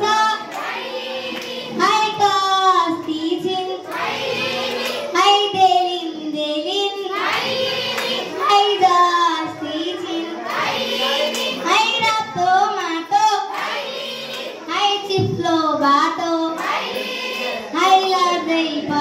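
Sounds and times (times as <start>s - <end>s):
girl singing into a microphone: 0.0s - 0.6s, 1.7s - 4.5s, 5.1s - 16.6s, 17.7s - 19.0s
children singing: 0.0s - 19.0s.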